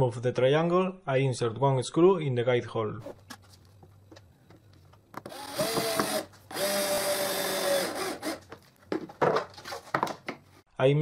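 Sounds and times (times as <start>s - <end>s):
drill driving a screw: 5.2s - 8.5s.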